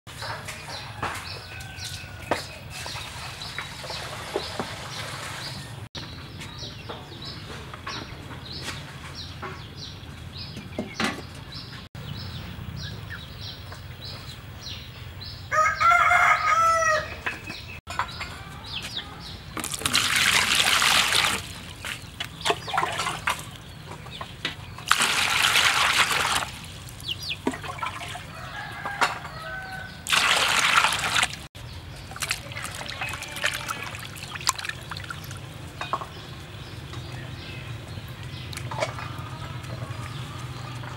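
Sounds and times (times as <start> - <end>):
rooster crowing: 0.7 - 2.4, 15.5 - 17.2, 28.2 - 30.1
water splashing in a plastic basin: 19.6 - 23.7, 24.8 - 28.3, 30.0 - 35.6.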